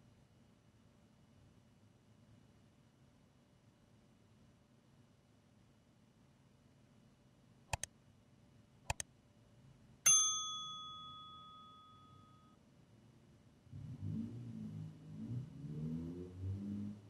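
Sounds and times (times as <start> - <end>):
mouse double-clicks: 8.9 - 9.1
notification bell ding: 10.1 - 12.5.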